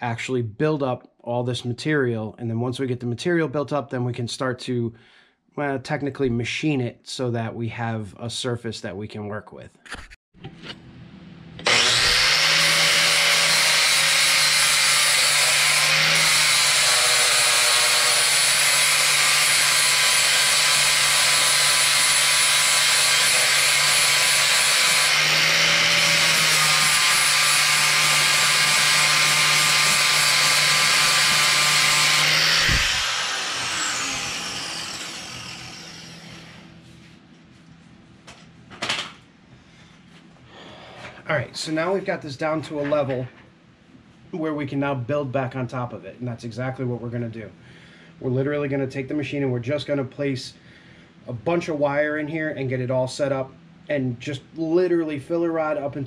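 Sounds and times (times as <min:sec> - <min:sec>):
angle grinder grinding metal: 0:11.6 - 0:36.8.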